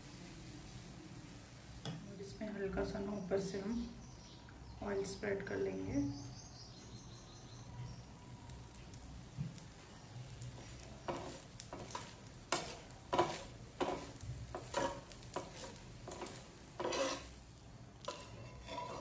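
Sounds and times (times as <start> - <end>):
faint oil sizzle: 0.0 - 19.0
plastic spatula scraping a pan: 10.3 - 19.0.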